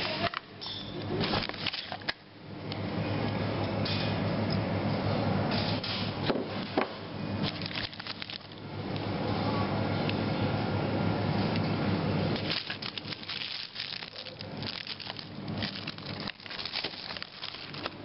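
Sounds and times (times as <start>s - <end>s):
low steady hum: 0.0s - 18.0s
plastic packaging rustling: 1.2s - 2.1s, 7.4s - 8.6s, 12.3s - 18.0s.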